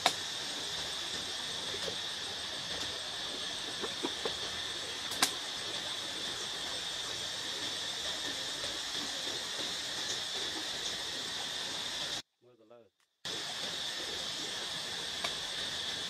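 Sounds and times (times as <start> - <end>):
insects droning: 0.0 - 16.0
sharp snap: 5.1 - 5.4.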